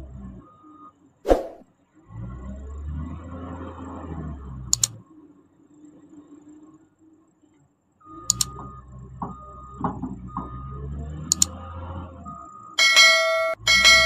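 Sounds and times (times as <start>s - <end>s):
mouse double-click: 4.7s - 5.0s, 8.3s - 8.6s, 11.3s - 11.5s
notification bell ringing: 12.8s - 14.0s.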